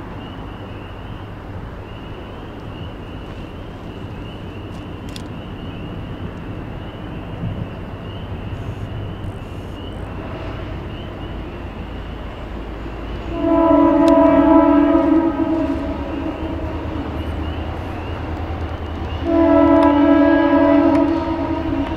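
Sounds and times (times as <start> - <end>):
diesel locomotives rumbling: 0.0 - 21.9
locomotive horn chord: 13.2 - 21.9
crossing bell dinging: 13.3 - 18.5.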